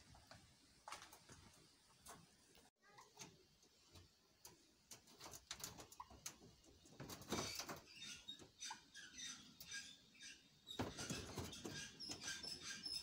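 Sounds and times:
soft bird chirps: 5.8s - 13.0s.

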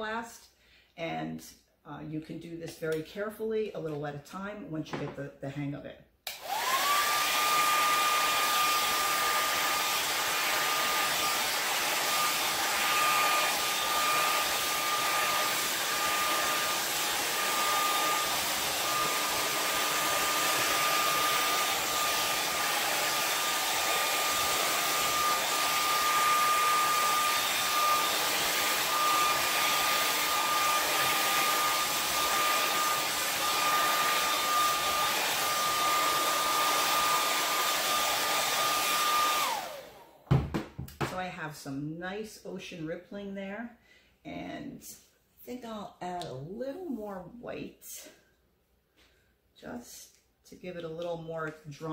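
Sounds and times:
hair dryer running: 6.2s - 41.2s.

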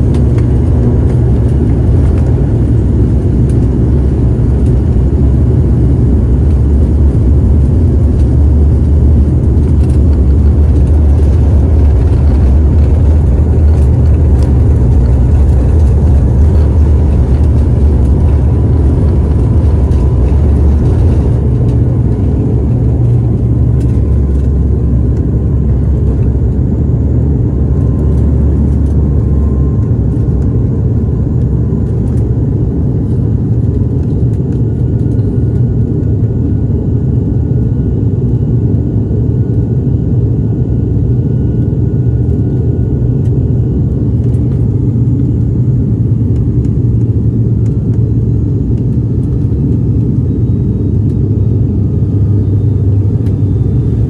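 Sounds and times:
airliner cabin jet rumble: 0.0s - 54.0s.

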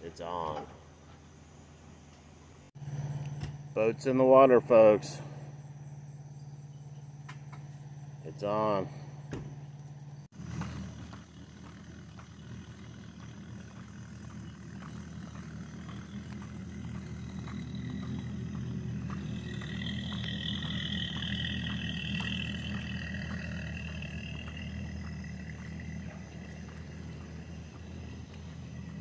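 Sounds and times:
low engine hum: 0.2s - 29.0s
footsteps on concrete: 10.3s - 29.0s.

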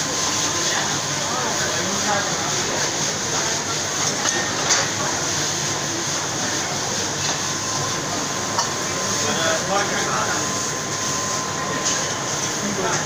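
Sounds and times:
gas burners roaring: 0.0s - 13.0s.

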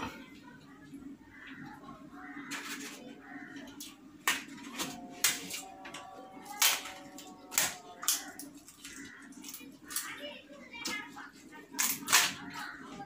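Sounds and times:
crisp wafer crunching: 2.5s - 10.2s.

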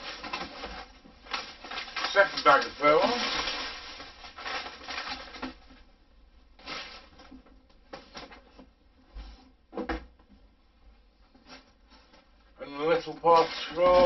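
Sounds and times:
plastic bag rustling: 0.0s - 5.9s, 6.5s - 8.6s, 11.4s - 14.0s.

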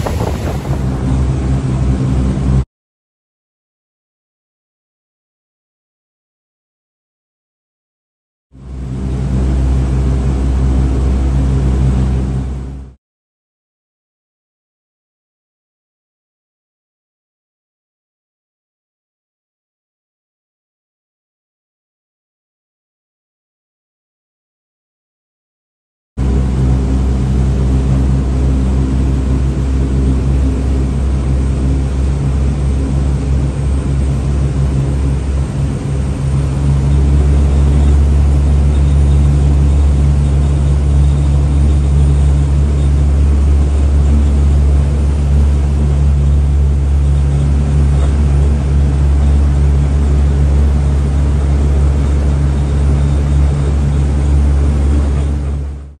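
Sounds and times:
motorboat engine drone: 0.0s - 2.6s, 8.6s - 13.0s, 26.2s - 56.0s
water and wind noise: 0.0s - 2.6s.

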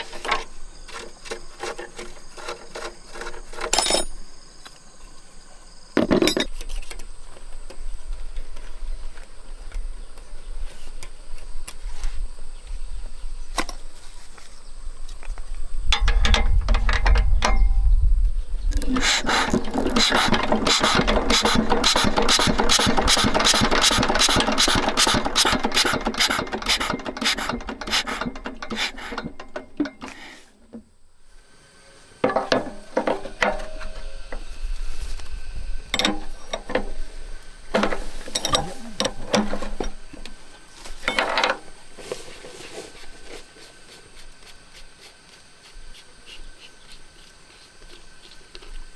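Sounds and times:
spanner clinking on metal: 3.7s - 4.2s, 35.9s - 36.8s
fast mechanical clicking: 19.8s - 29.2s.

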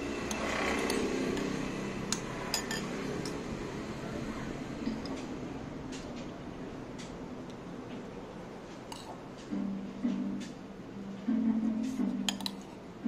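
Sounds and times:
spoon clinking ceramic bowl: 2.1s - 3.4s, 12.2s - 12.7s.

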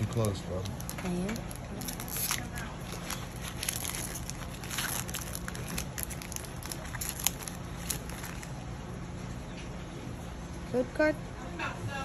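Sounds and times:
foil pack crinkling: 0.0s - 8.8s.

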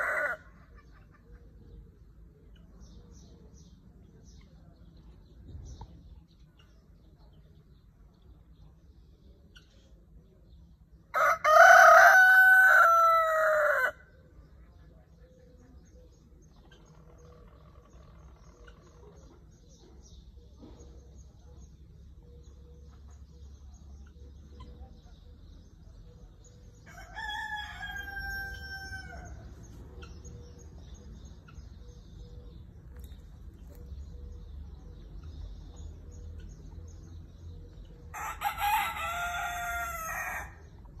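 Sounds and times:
rooster crowing: 11.2s - 14.0s, 26.9s - 29.4s, 38.1s - 40.6s.

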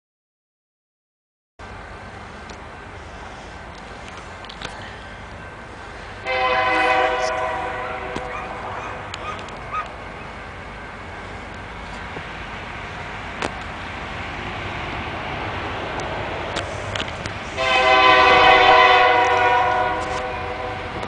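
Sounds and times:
low rumble of train: 1.6s - 21.0s
locomotive horn: 6.2s - 9.1s, 17.5s - 21.0s.

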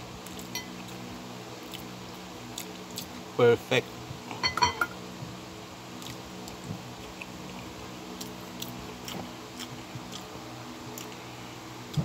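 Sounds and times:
steady low hum: 0.0s - 12.0s
metal spoon clinking on plate: 4.4s - 5.0s
chewing close to microphone: 6.0s - 11.3s.

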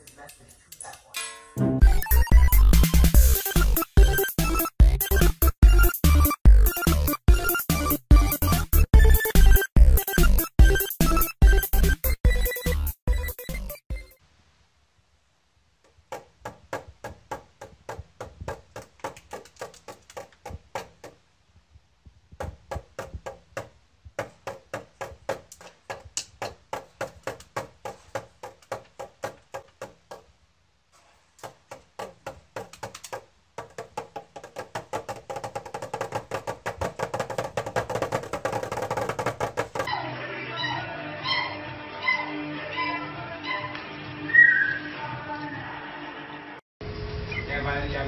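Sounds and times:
toy snare drum taps: 31.4s - 39.9s.

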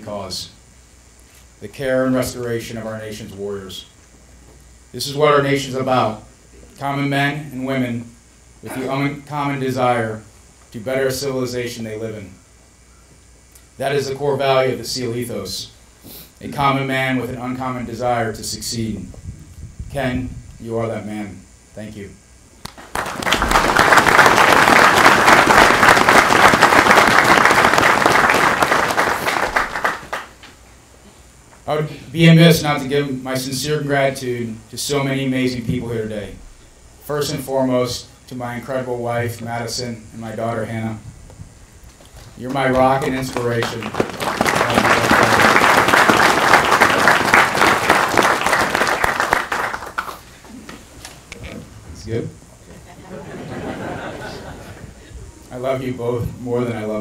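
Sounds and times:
audience applauding: 22.7s - 30.4s, 42.7s - 50.2s.

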